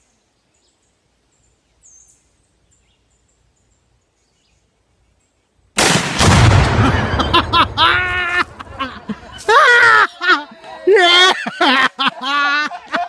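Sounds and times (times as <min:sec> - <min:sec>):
faint bird chirps: 0:00.0 - 0:05.6
rifle shot: 0:05.8 - 0:08.0
loud explosion boom rumbling: 0:05.8 - 0:08.7.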